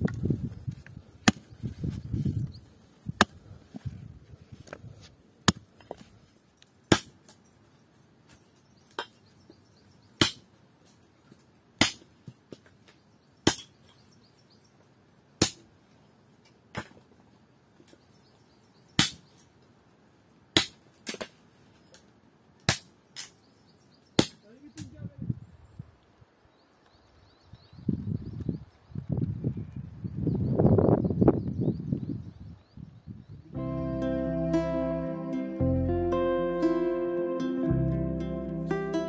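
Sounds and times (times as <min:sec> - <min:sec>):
hatchet chopping branches: 0:01.2 - 0:01.5, 0:06.9 - 0:07.4, 0:10.2 - 0:10.5, 0:11.8 - 0:12.7, 0:13.5 - 0:13.8, 0:15.4 - 0:15.7, 0:19.0 - 0:19.3, 0:20.6 - 0:21.4, 0:22.6 - 0:23.4, 0:24.2 - 0:24.9.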